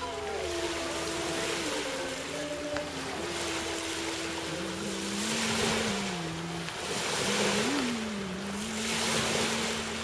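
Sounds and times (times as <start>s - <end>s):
faint low droning tone: 0.0s - 10.0s
small waves washing ashore: 0.0s - 10.0s
wind: 0.0s - 10.0s.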